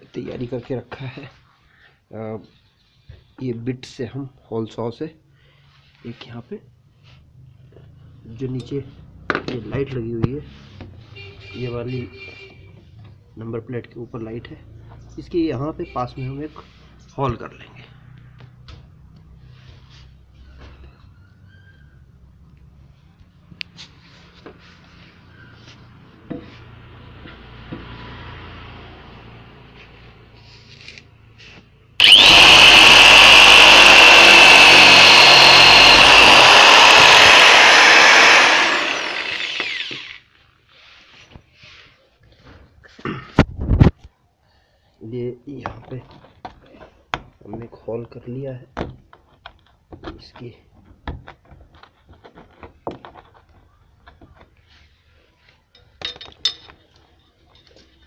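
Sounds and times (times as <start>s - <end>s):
drill whining down: 32.0s - 40.3s
electric drill cutting plastic: 32.0s - 40.3s.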